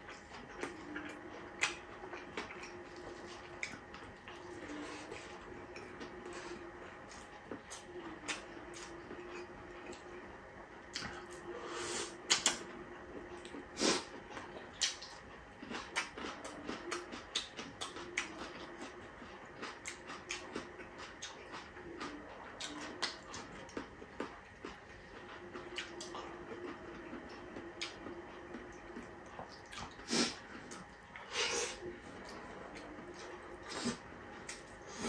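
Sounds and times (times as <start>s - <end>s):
chewing and lip-smacking: 0.0s - 10.3s, 10.9s - 11.6s, 12.2s - 35.0s.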